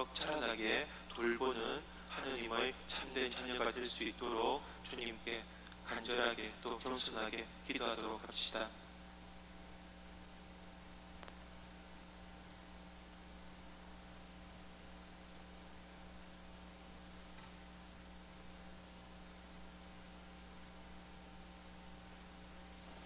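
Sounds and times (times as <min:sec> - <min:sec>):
sound system hiss: 0:00.0 - 0:09.4
electrical mains hum: 0:00.0 - 0:23.0.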